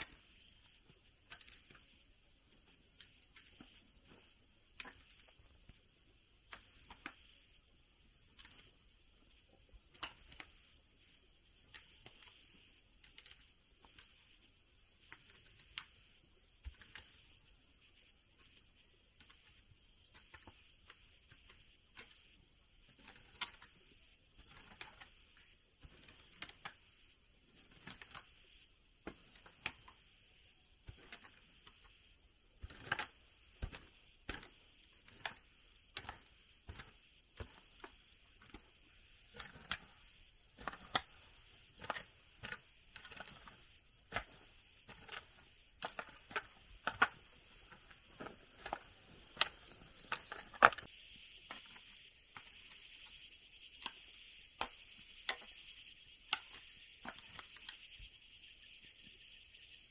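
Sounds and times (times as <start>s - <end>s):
high insect drone: 49.0s - 59.9s.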